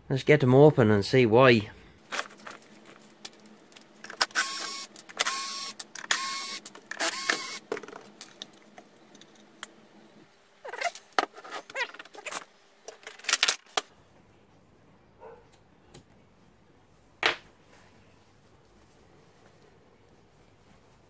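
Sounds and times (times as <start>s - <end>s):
parts and test leads rattling: 2.0s - 9.8s.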